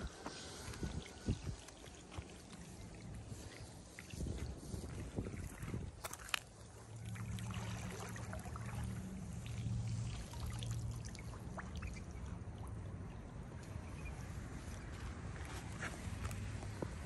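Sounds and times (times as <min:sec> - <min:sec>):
water trickling and dripping: 0:00.2 - 0:15.5
steady low hum: 0:06.6 - 0:15.5.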